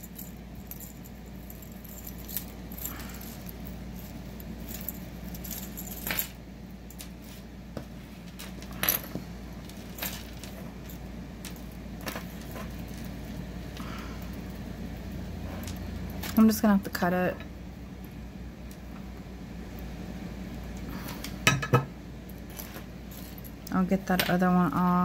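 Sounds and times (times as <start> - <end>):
metal jewelry jingling and clicking: 0.0 - 7.4, 8.3 - 13.6, 22.3 - 23.7.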